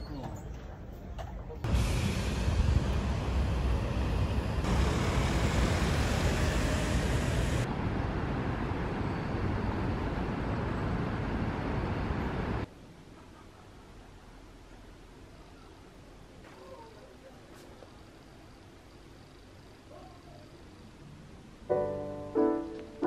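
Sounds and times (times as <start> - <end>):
passing car traffic: 1.7 - 12.7.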